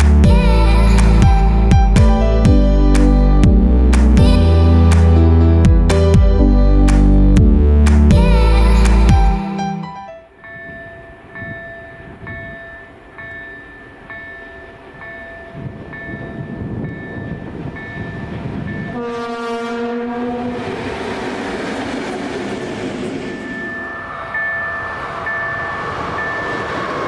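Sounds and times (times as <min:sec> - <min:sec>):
train rumble: 0:00.0 - 0:09.5, 0:10.3 - 0:27.0
train horn: 0:18.9 - 0:20.8.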